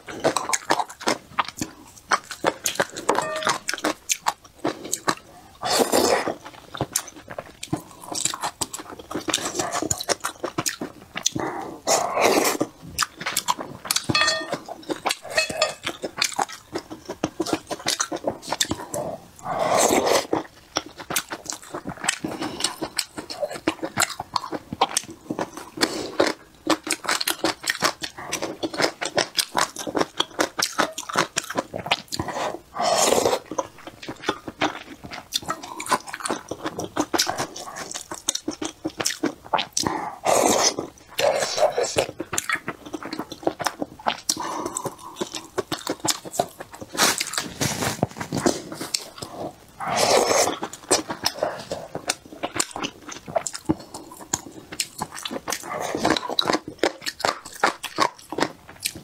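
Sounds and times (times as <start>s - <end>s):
wet chewing and mouth clicks: 0.0s - 59.0s
slurping: 37.2s - 58.2s.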